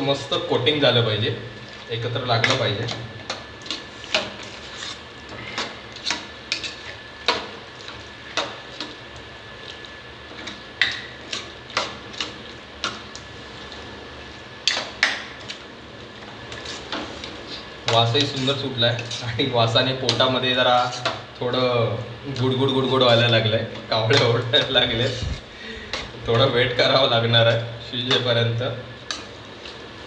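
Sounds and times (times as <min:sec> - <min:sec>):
metal spatula scraping pan: 0:18.0 - 0:19.4.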